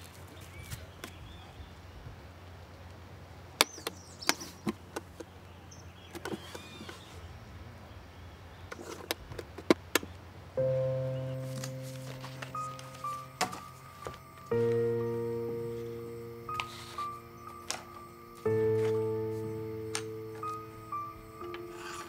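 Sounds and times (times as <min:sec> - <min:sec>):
music: 0:10.6 - 0:22.0.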